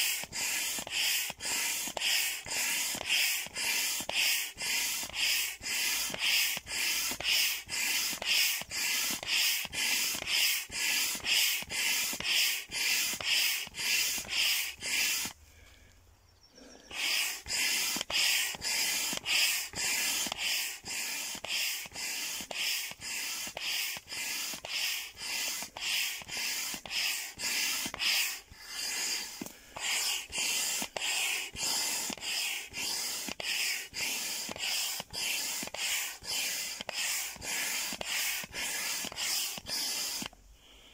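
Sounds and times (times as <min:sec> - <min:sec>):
hand air pump hissing: 0:00.0 - 0:15.8, 0:16.8 - 0:40.9.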